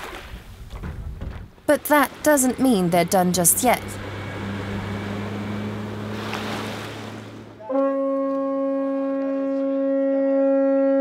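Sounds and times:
rushing water and wind: 0.0 - 7.7
outboard motor running: 1.7 - 9.0
long steady horn-like note: 2.9 - 11.0.

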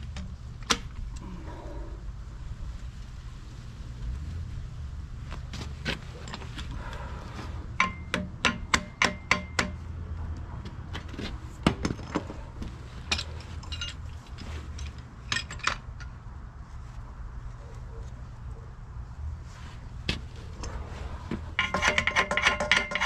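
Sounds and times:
metal clamps clinking: 13.0 - 16.2, 21.6 - 23.0.

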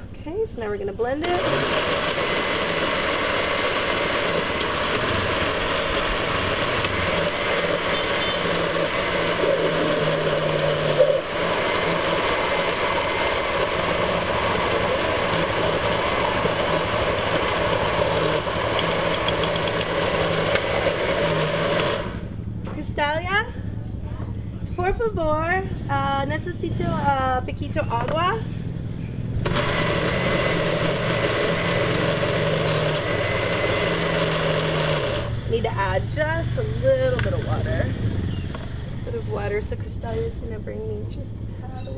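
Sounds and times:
blender motor running: 1.2 - 22.3, 29.5 - 37.8.

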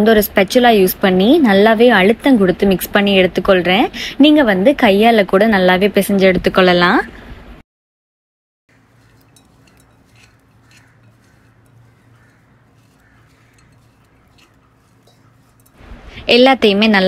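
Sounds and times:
spoon scraping ceramic bowl: 8.7 - 15.9
low steady hum: 8.7 - 17.0.

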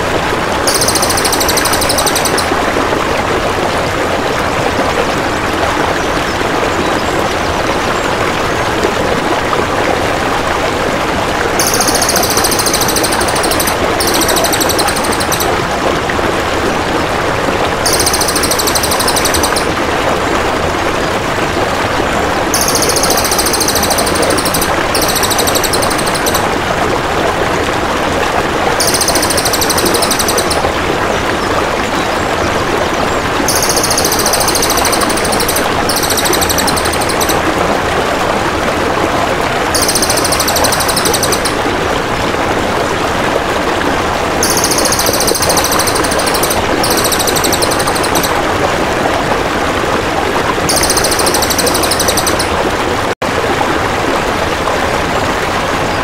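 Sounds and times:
flowing water: 0.0 - 56.0
bird calling in pulsed trills: 0.7 - 2.6, 11.6 - 15.6, 17.9 - 19.8, 22.6 - 26.5, 28.8 - 30.8, 33.5 - 37.4, 39.8 - 41.6, 44.4 - 48.4, 50.7 - 52.5.

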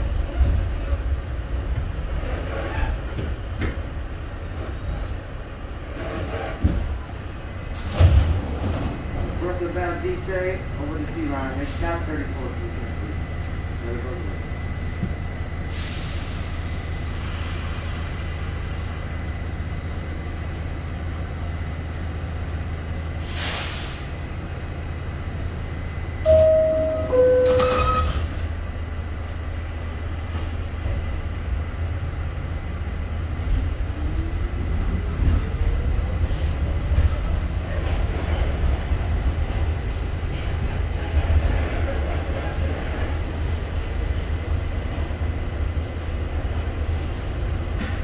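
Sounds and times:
train doors closing: 0.0 - 5.2, 5.8 - 10.4, 25.4 - 31.5, 33.4 - 48.0
subway train rumbling: 0.0 - 48.0
two-note door chime: 26.3 - 28.2.

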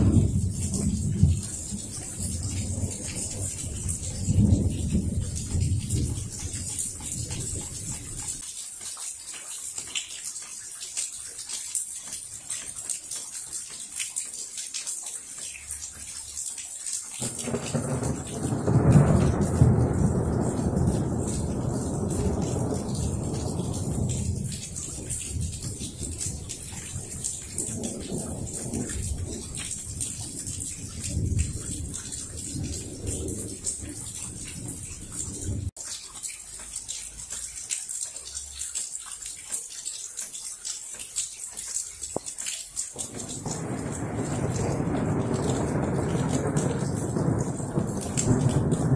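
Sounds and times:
thunder rumble: 0.0 - 8.2, 17.2 - 35.7, 43.0 - 48.9
drips and splashes: 0.0 - 48.9
rain falling: 0.0 - 48.9.

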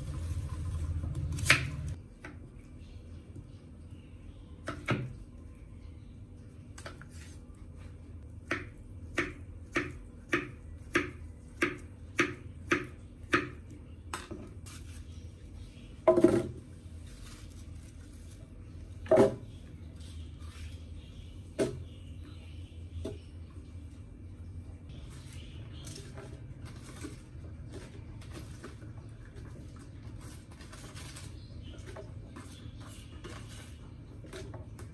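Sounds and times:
knife chopping on wooden board: 8.4 - 13.6.

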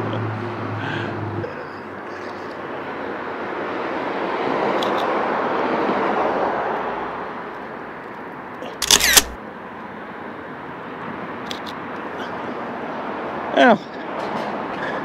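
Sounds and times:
street traffic passing: 0.0 - 15.0
camera shutter: 8.8 - 9.4.

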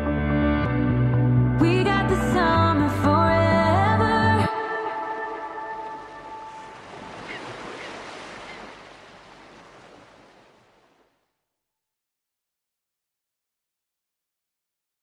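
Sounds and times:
sea surf washing: 4.5 - 11.2.

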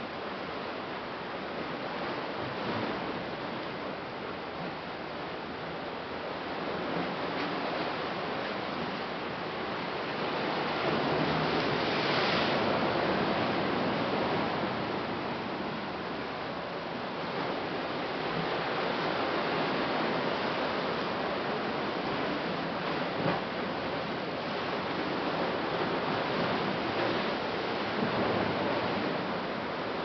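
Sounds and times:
ocean surf washing on rocks: 6.0 - 30.0.

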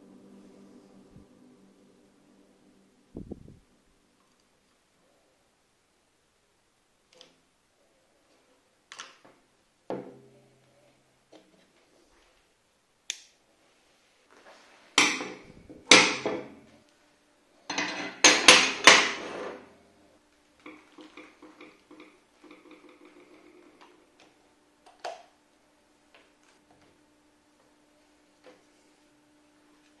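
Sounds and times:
metal bars clanking on workbench: 15.0 - 16.6, 17.7 - 19.7.

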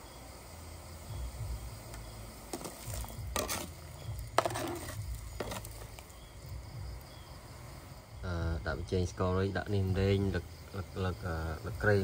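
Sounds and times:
hard objects knocking: 2.5 - 6.0
short scrape: 2.6 - 3.8, 4.4 - 5.8.

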